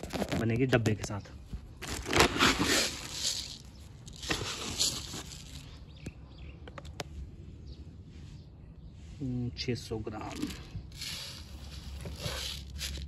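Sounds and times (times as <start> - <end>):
granules poured into plastic tub: 1.9 - 5.7, 10.3 - 13.0.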